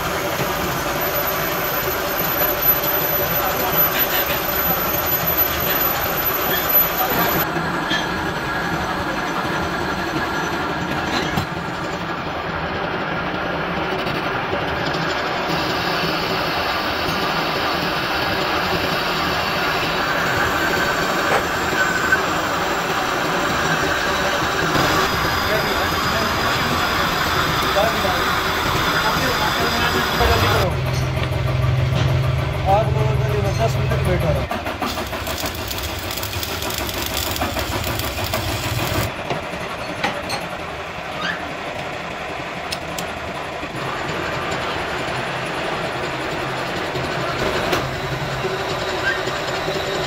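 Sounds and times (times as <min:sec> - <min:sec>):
lathe running hum: 0:00.0 - 0:50.0
short high squeal: 0:01.1 - 0:08.1, 0:20.2 - 0:22.7, 0:47.8 - 0:50.0
lathe tool grinding steel: 0:15.5 - 0:30.7, 0:34.5 - 0:39.1
arc welding crackle: 0:34.8 - 0:39.1.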